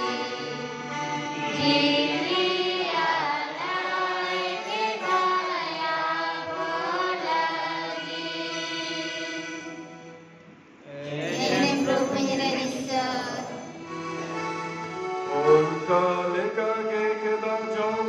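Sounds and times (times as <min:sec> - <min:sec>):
liturgical singing: 0:00.0 - 0:09.8, 0:10.9 - 0:14.6
sustained instrument chords: 0:11.1 - 0:18.0.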